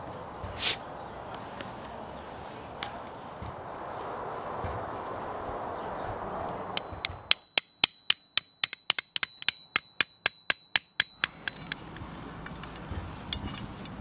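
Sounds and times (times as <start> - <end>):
hammer striking steel stakes: 6.8 - 13.7.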